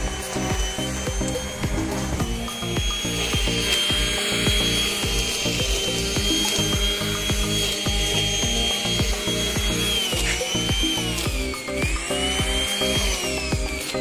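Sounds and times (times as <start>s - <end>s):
background music with a beat: 0.0s - 14.0s
electric line trimmer whining: 0.0s - 14.0s.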